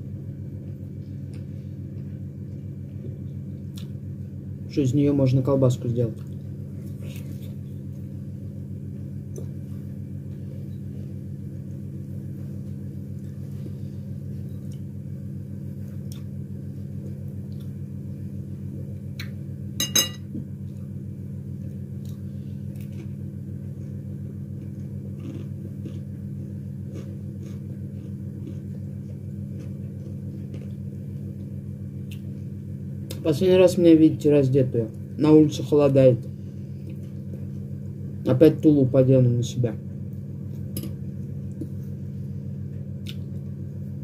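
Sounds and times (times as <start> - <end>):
low mechanical hum: 0.0 - 44.0.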